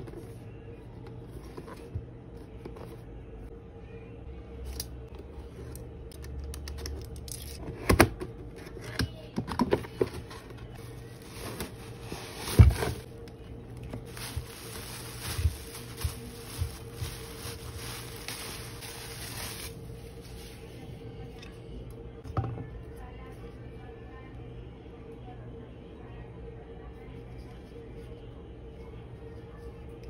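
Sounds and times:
faint steady hum: 0:00.0 - 0:30.0
plastic wrap rustling: 0:10.1 - 0:20.8
cardboard box scraping and knocking: 0:11.2 - 0:13.1.

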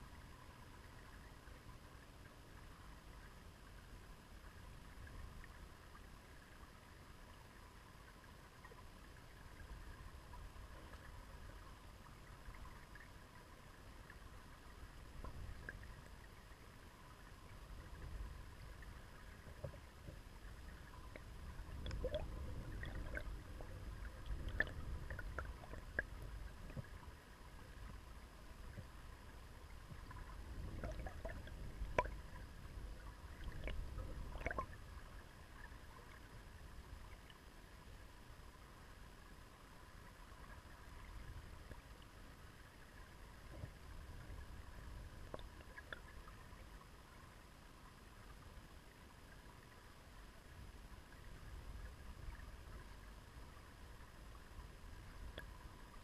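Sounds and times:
muffled underwater river rumble: 0:00.0 - 0:56.0
small ticks and clicks: 0:08.5 - 0:28.9, 0:29.9 - 0:34.8, 0:45.2 - 0:46.6, 0:55.2 - 0:55.6.

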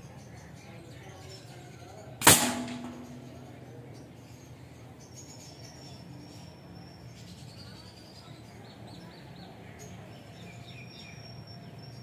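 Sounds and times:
birds chirping: 0:00.0 - 0:12.0
airgun shot crack: 0:02.2 - 0:03.7.

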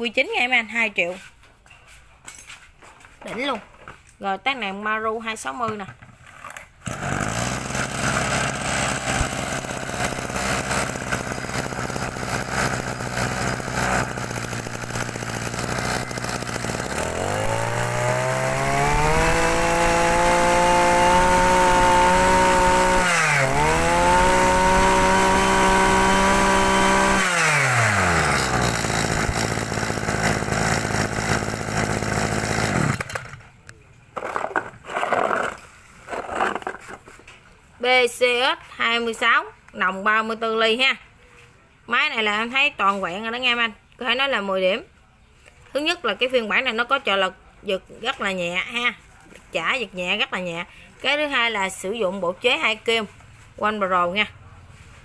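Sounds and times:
brush cutter engine revving: 0:06.4 - 0:33.5.

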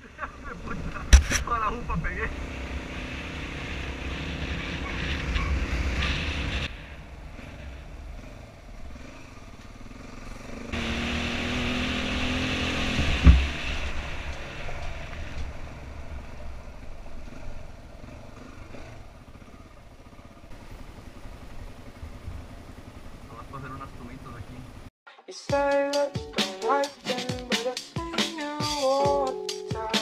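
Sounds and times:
dirt bike engine running: 0:00.0 - 0:24.9
sharp thump: 0:13.0 - 0:13.7.

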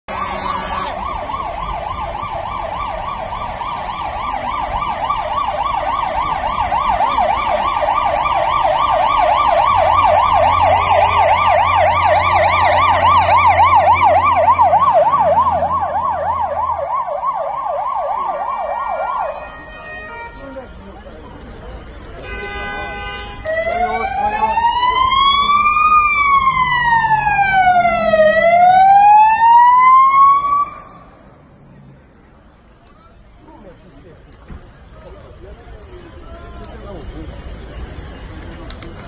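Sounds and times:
emergency siren yelping: 0:00.1 - 0:20.5, 0:23.4 - 0:31.2.

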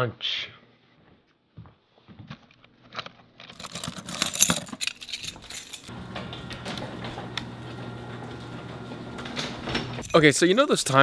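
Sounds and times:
keys jangling: 0:03.5 - 0:05.9, 0:10.0 - 0:10.7
garage door opener humming: 0:05.8 - 0:10.1.

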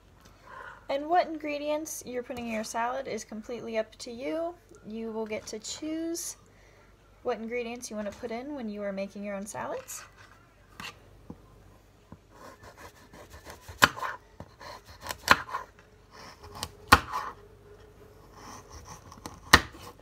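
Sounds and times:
knife cutting and scraping: 0:12.4 - 0:17.4, 0:18.2 - 0:20.0.

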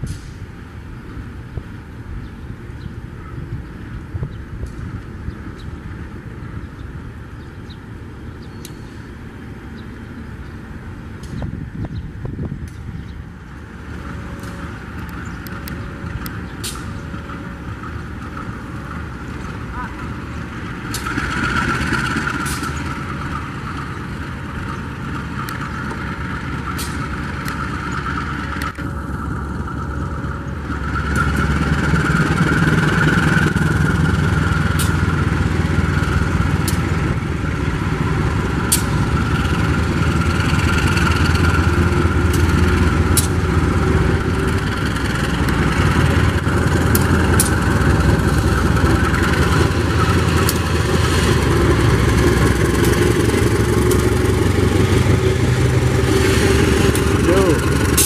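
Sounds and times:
locomotive engine droning: 0:00.0 - 0:58.0.

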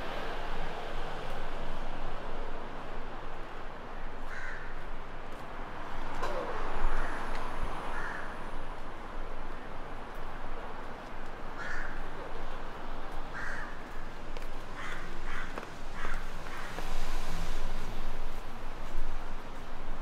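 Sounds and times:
background noise: 0:00.0 - 0:20.0
crow cawing: 0:04.2 - 0:04.8, 0:07.9 - 0:08.4, 0:11.6 - 0:12.1, 0:13.3 - 0:14.0, 0:14.8 - 0:16.7.

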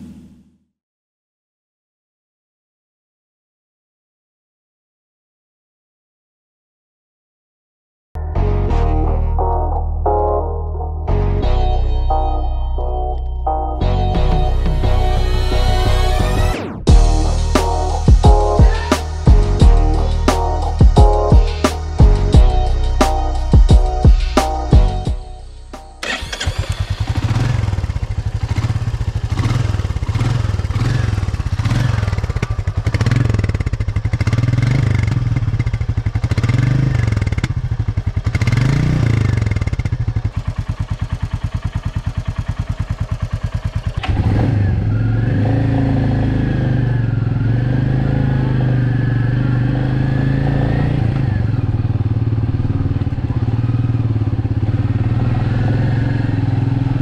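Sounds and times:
motorcycle engine revving and idling: 0:00.0 - 0:00.7, 0:13.8 - 0:57.0.

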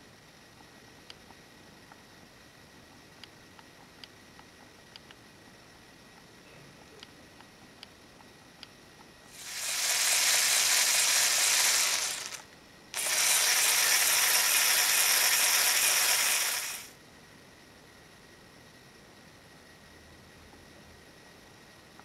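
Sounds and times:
motor whirring through gears: 0:09.3 - 0:16.9.

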